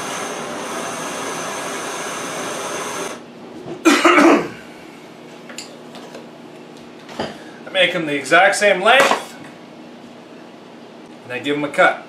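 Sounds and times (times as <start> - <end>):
gas torch flame hissing: 0.0 - 3.2
person coughing: 3.8 - 4.7.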